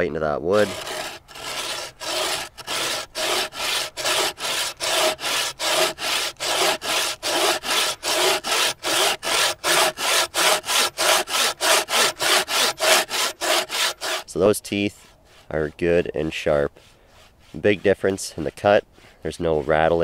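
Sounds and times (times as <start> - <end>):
bow saw cutting log: 0.0 - 20.0.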